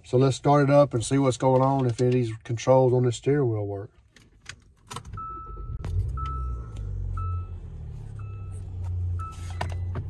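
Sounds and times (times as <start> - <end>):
car engine starting and idling: 4.3 - 10.0
dashboard warning chime beeping: 5.1 - 10.0.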